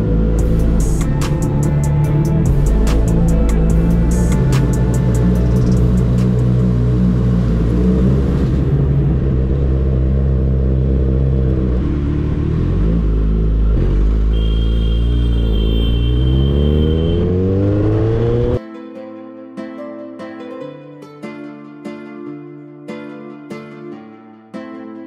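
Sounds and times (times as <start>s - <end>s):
motorcycle engine running: 0.0s - 18.6s.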